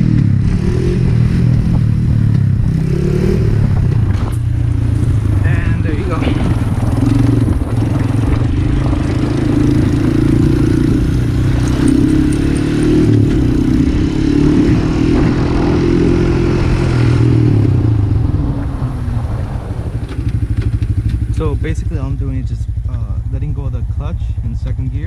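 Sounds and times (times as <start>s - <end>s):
engine running at high revs: 0.0s - 24.2s.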